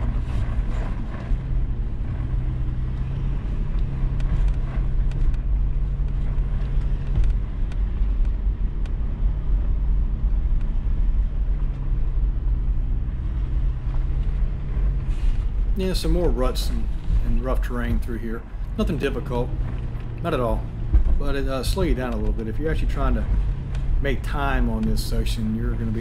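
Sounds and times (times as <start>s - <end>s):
car engine drone: 0.0s - 26.0s
ticks and knocks from rough ground: 16.9s - 26.0s.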